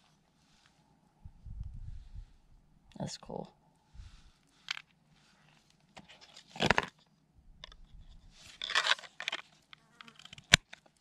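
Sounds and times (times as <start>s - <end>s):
knife sheath scraping rustles: 8.0s - 10.6s.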